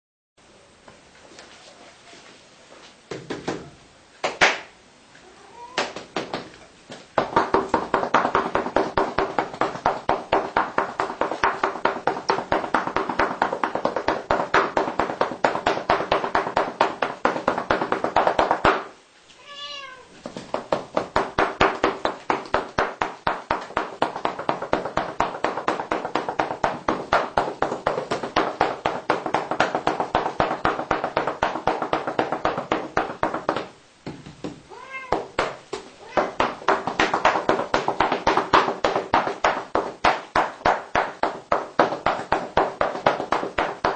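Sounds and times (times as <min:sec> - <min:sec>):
cat meowing: 0:05.2 - 0:06.0, 0:19.4 - 0:20.2, 0:34.7 - 0:35.4.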